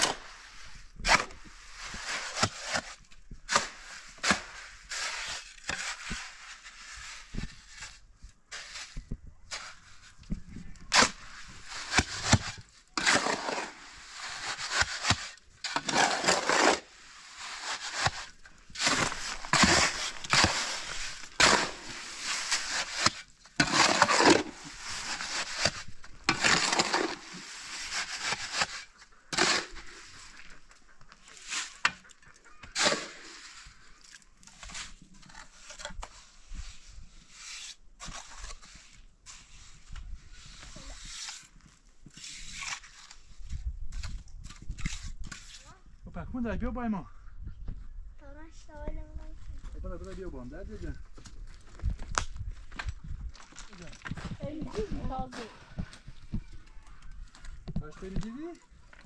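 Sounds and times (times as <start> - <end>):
short scraping: 10.8 - 30.6.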